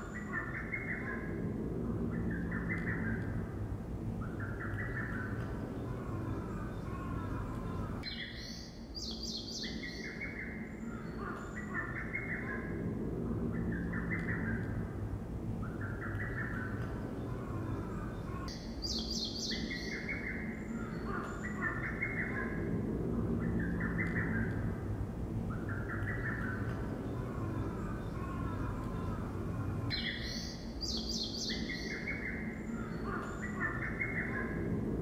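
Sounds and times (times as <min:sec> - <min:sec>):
songbird singing: 0:00.0 - 0:35.0
high bird chirps: 0:18.4 - 0:22.6.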